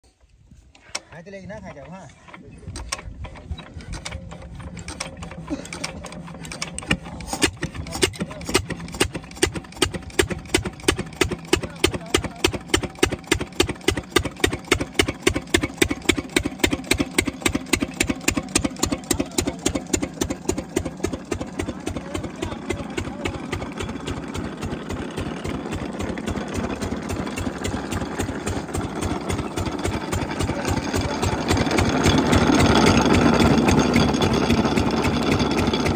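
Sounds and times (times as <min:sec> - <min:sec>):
single-cylinder diesel engine running: 0:01.4 - 0:35.9.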